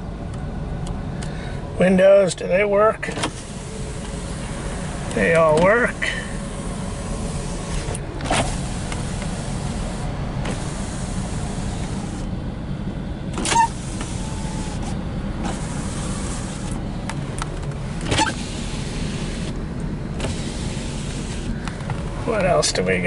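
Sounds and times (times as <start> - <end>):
window clunks: 3.1 - 12.3, 13.3 - 22.1
power window motors running: 3.1 - 12.4, 13.2 - 22.6.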